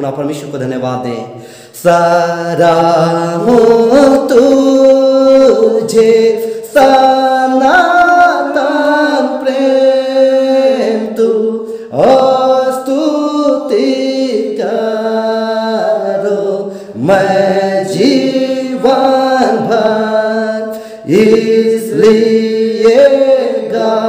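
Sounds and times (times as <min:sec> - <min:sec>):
man singing unaccompanied: 0:01.1 - 0:24.0
man breathing: 0:01.4 - 0:01.8, 0:11.6 - 0:11.9, 0:16.7 - 0:17.0, 0:20.7 - 0:21.1.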